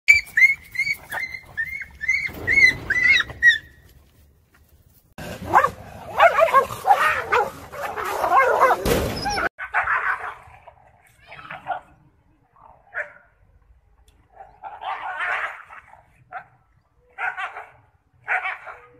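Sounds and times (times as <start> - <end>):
dog yelping: 0.1 - 3.8, 5.5 - 10.4
dogs barking and fighting: 0.1 - 3.9, 5.2 - 12.0, 14.2 - 18.9.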